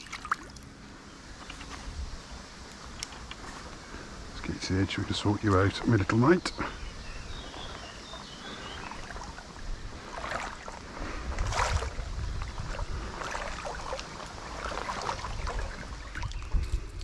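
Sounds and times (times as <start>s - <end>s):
loud water splashes: 0.0s - 0.6s, 8.1s - 16.5s
water sloshing from wading: 0.0s - 2.0s, 4.6s - 17.0s.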